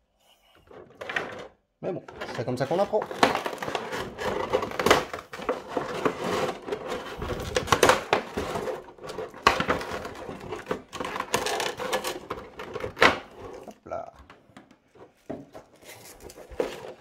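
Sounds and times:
plastic packaging crinkling: 15.6 - 17.0.

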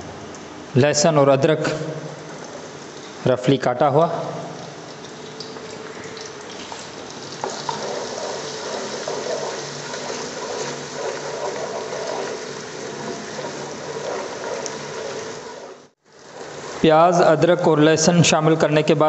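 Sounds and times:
food sizzling in hot oil: 6.9 - 16.8.

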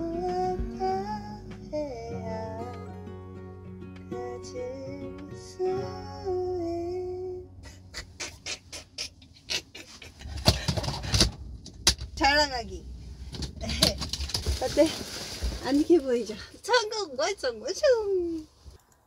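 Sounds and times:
background music with singing: 0.0 - 7.9.

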